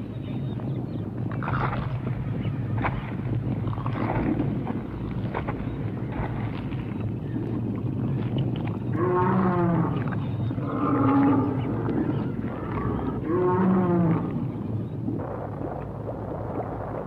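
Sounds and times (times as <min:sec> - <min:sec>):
steady low rumble: 0:00.0 - 0:17.0
dinosaur roar: 0:12.6 - 0:14.3.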